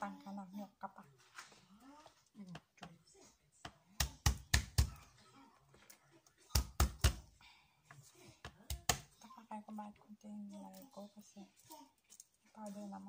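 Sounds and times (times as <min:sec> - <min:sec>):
knife chopping on plastic board: 0:03.6 - 0:05.0, 0:06.5 - 0:07.3, 0:08.4 - 0:09.1.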